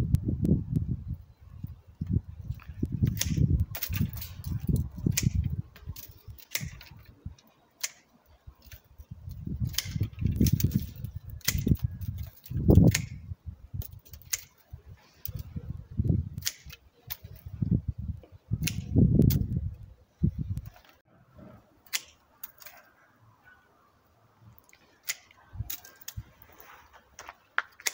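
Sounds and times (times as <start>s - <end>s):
pruning shears snipping: 2.6s - 13.2s, 13.8s - 15.5s, 16.4s - 17.4s, 18.6s - 19.5s, 21.8s - 22.9s, 24.6s - 27.9s.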